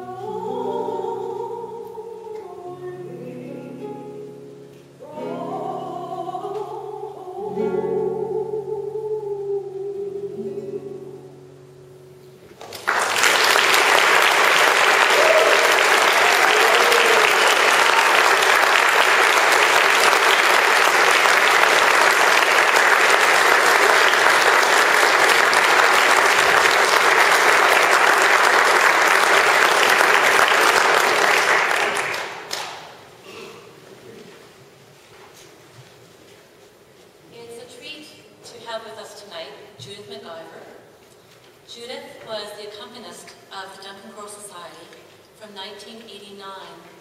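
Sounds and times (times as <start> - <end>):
audience applauding: 12.6 - 33.0.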